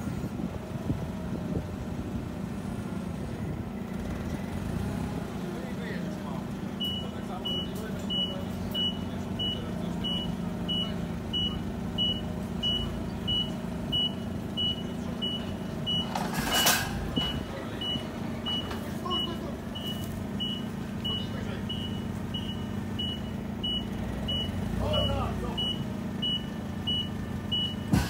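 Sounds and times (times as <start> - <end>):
idling engine hum: 0.0 - 28.0
forklift warning beeper: 6.7 - 28.0.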